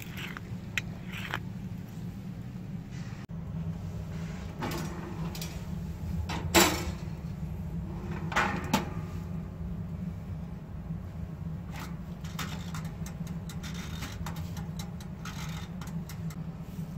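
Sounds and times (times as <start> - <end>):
metal scraping: 0.0 - 1.4
steady low hum: 0.0 - 16.9.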